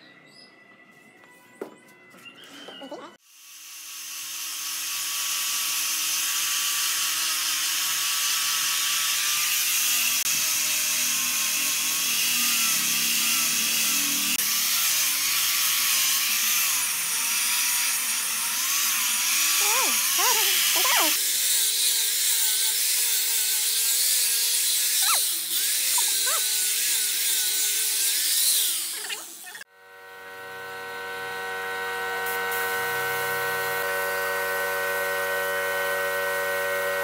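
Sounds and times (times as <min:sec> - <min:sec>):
angle grinder sanding wood: 0:03.7 - 0:29.6.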